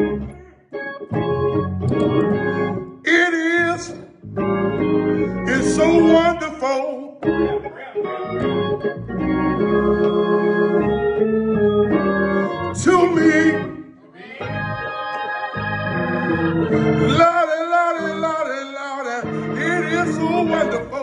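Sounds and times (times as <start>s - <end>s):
organ playing gospel chords: 0.0s - 21.0s
man singing wordless phrases: 3.0s - 4.2s, 5.4s - 7.2s, 12.8s - 14.0s, 17.0s - 21.0s.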